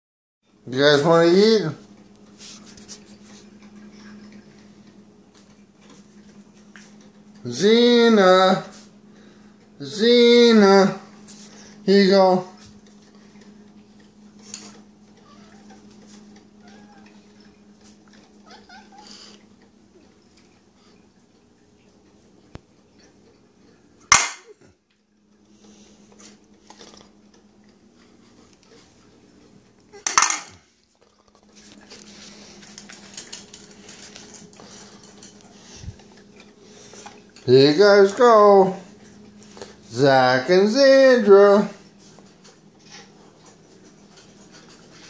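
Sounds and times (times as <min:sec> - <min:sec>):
low steady hum: 0:00.4 - 0:45.0
cats chewing food: 0:01.8 - 0:07.4, 0:12.4 - 0:24.0, 0:24.6 - 0:30.0, 0:30.6 - 0:37.6, 0:41.8 - 0:45.0
cats meowing softly: 0:15.2 - 0:17.6, 0:18.2 - 0:19.4.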